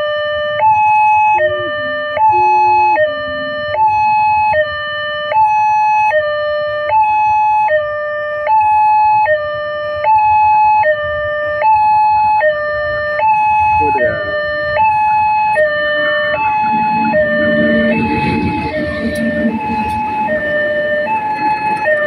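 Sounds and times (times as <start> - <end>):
level crossing two-tone alarm: 0.7 - 6.3, 13.2 - 22.0.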